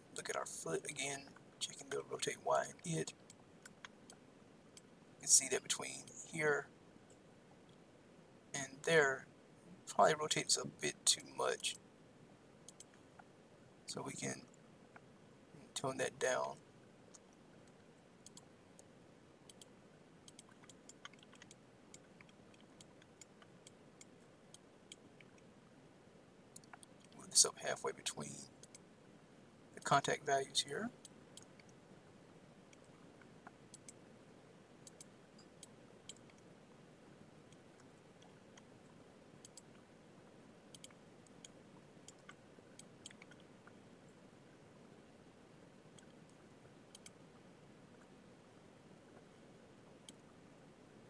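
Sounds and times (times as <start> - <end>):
low room hum: 0.0 - 51.0
computer mouse and keyboard clicking: 17.1 - 18.9, 19.5 - 25.4, 26.5 - 27.2, 40.7 - 43.8, 46.0 - 47.2.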